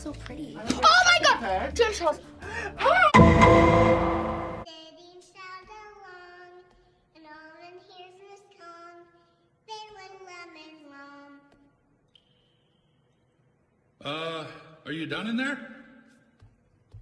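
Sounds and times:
loud musical sting: 3.2s - 4.7s
toddler singing wordless tune: 4.7s - 11.7s.

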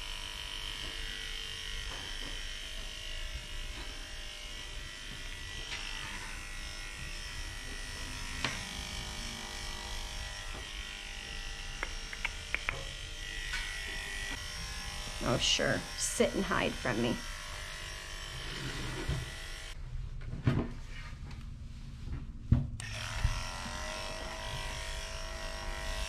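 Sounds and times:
electric clippers humming: 0.0s - 19.8s, 22.8s - 26.0s.

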